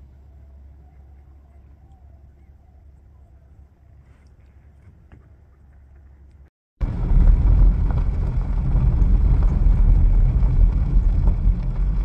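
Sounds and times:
vehicle driving on dirt road: 6.0s - 12.0s
wind buffeting microphone: 6.8s - 12.0s.

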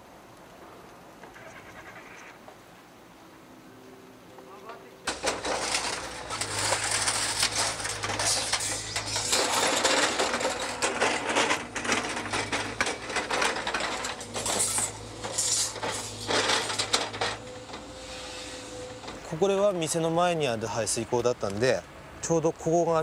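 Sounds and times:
debris clattering and crashing: 5.0s - 19.9s
excavator engine hum: 5.1s - 20.2s.

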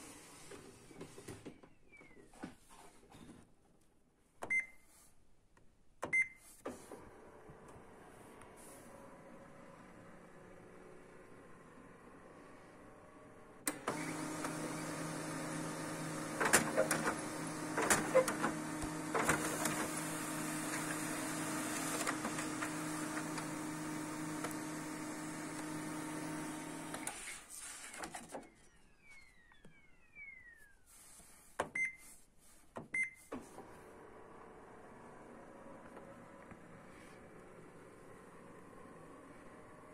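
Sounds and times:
printer motors humming: 13.7s - 27.4s
printer clicks: 16.3s - 19.9s
faint falling whine: 28.5s - 30.9s.

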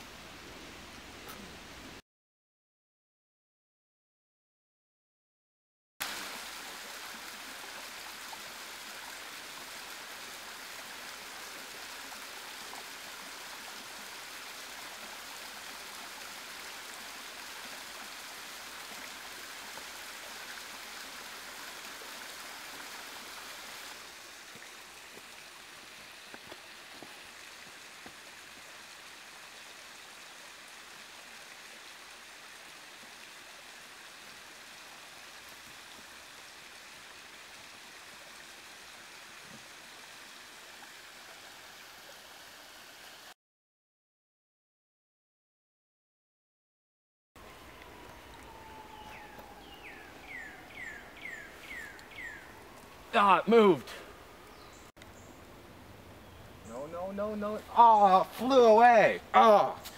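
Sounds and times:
waterfall and stream rushing: 6.0s - 43.4s, 47.4s - 56.0s, 56.6s - 59.9s.

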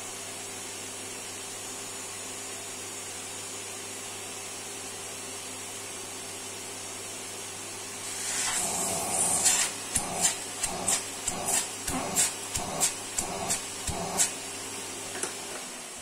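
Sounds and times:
vacuum cleaner motor hum: 8.0s - 16.0s.

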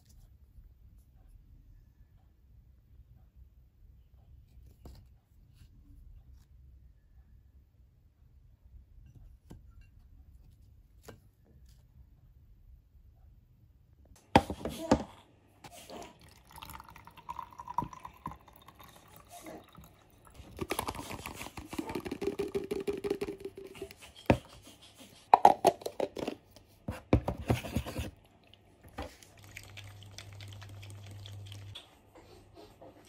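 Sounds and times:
milk pouring between bottles: 15.7s - 24.4s, 27.7s - 31.8s.

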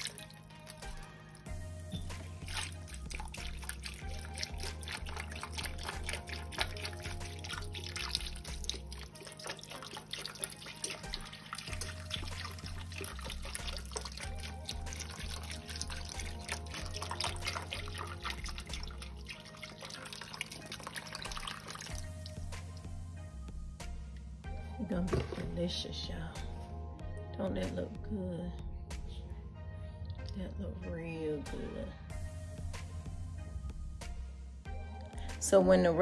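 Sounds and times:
background music with bass line: 0.0s - 36.0s
broth pouring into pan: 2.1s - 22.7s.

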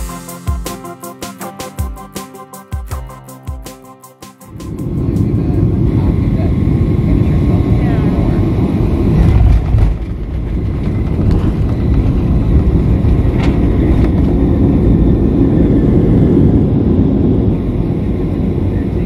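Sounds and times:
jet cabin rumble: 4.7s - 19.0s
wheels touching runway: 8.6s - 16.5s.

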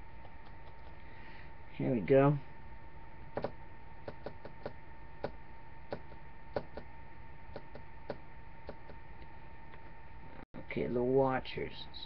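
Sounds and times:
faint electrical hum: 0.0s - 12.0s
computer clicks: 3.3s - 6.9s, 7.5s - 9.0s.

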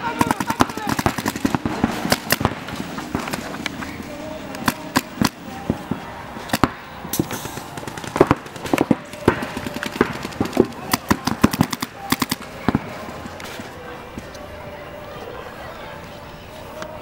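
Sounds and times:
paintball markers firing: 0.0s - 3.9s, 4.5s - 5.9s, 6.5s - 13.6s.

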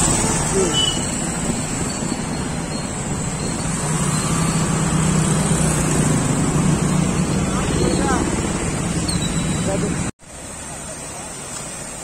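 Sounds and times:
motorcycle engines running: 0.0s - 10.1s
vehicles driving through water: 0.0s - 12.0s.

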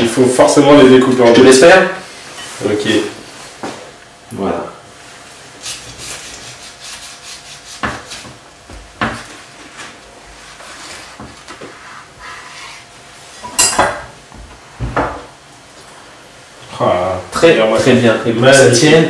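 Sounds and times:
knife rasping through bread: 5.6s - 8.4s.

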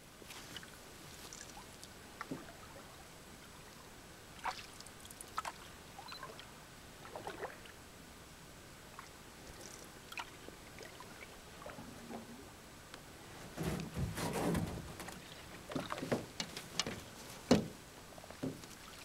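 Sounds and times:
water splashes and drips: 0.3s - 2.9s, 4.4s - 7.8s, 8.9s - 11.9s, 13.6s - 19.0s
paddles dipping in water: 4.4s - 7.8s, 8.9s - 12.4s, 13.1s - 19.0s.

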